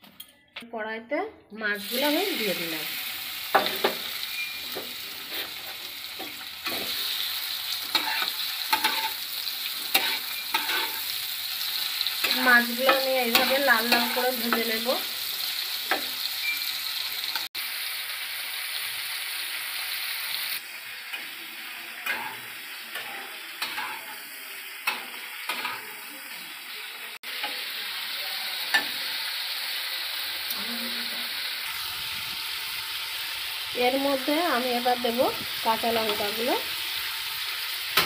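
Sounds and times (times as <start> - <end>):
prawns sizzling in hot oil: 1.7 - 38.0
metal spatula scraping a pan: 3.6 - 14.9, 22.0 - 26.0.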